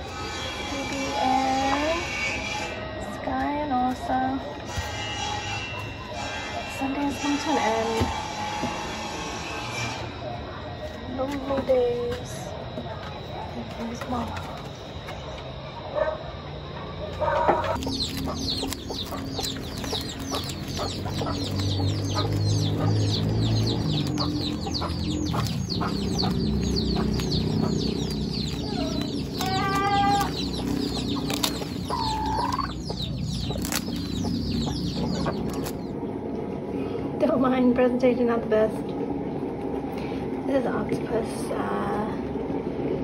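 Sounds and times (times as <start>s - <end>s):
chicks peeping: 16.6s - 35.9s
chicken call: 28.5s - 32.8s.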